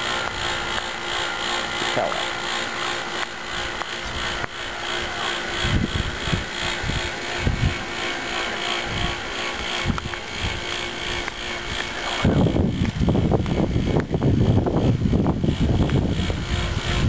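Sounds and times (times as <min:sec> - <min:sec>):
air conditioner compressor drone: 0:00.0 - 0:17.0.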